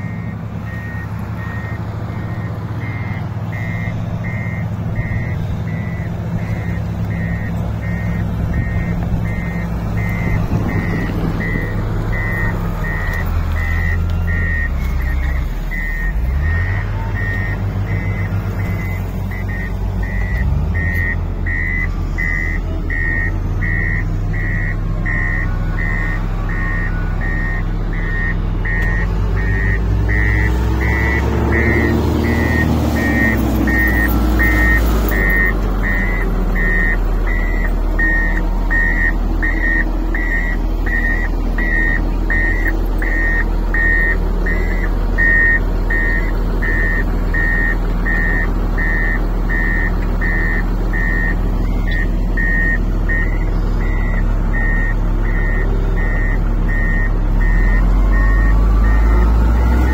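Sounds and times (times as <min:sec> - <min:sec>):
diesel engine running: 0:00.0 - 0:59.9
reversing alarm beeping: 0:00.0 - 0:59.9.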